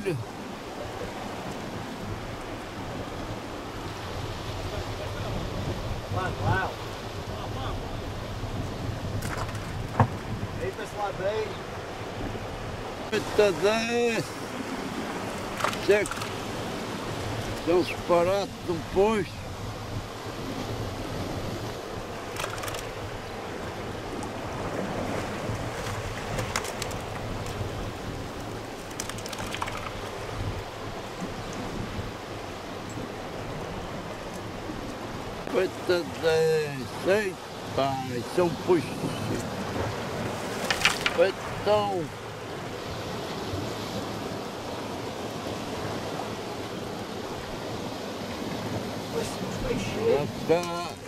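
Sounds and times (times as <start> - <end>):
wind buffeting microphone: 0.0 - 51.0
sea washing against rocks: 12.6 - 32.2, 33.3 - 51.0
faint clicks: 28.4 - 30.1.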